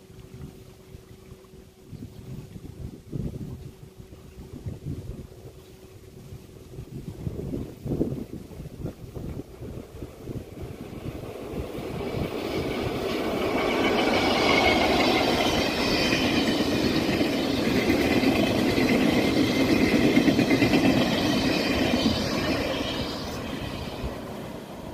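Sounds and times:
train wheels on rails: 0:09.4 - 0:24.9.

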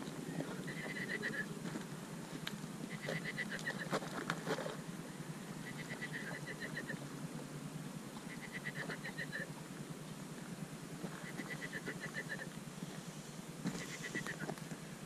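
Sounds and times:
animal high chirps: 0:05.6 - 0:07.0, 0:11.2 - 0:12.5.

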